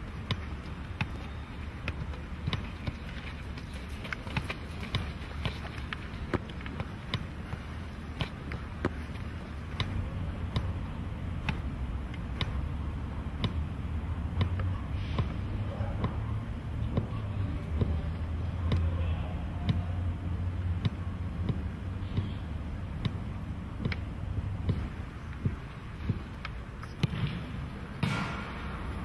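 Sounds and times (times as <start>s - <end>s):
boot thudding on soccer ball: 0.1s - 10.8s, 23.0s - 28.4s.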